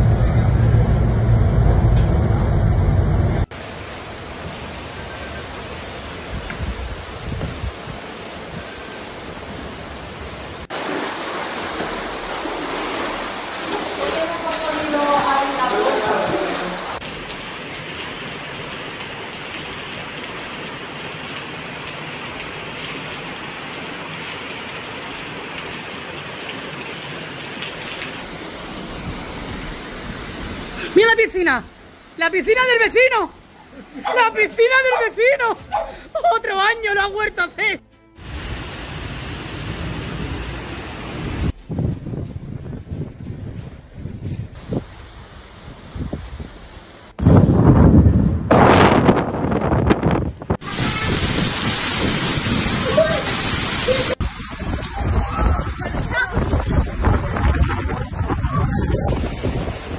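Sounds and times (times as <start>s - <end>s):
driving rain: 0.0s - 59.9s
floodwater running through street: 0.0s - 59.9s
storm wind buffeting microphone: 6.0s - 8.8s, 41.0s - 59.9s.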